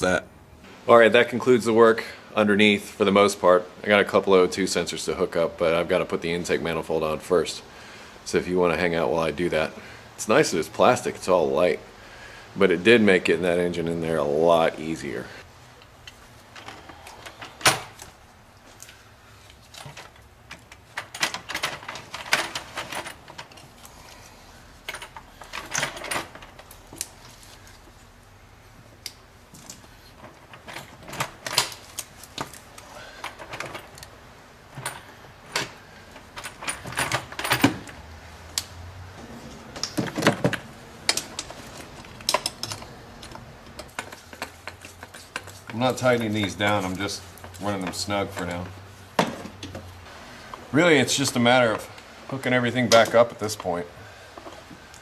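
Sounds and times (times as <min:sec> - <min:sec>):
tools and bolts clinking: 0:19.5 - 0:27.6, 0:29.0 - 0:38.7, 0:39.8 - 0:50.1, 0:51.1 - 0:55.0.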